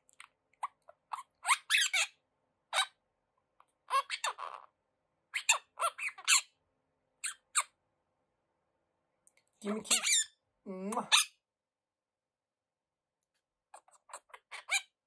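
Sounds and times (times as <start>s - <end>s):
parrot chattering: 0.6s - 3.0s, 3.8s - 6.6s, 7.2s - 7.8s, 9.7s - 11.4s, 13.7s - 15.0s.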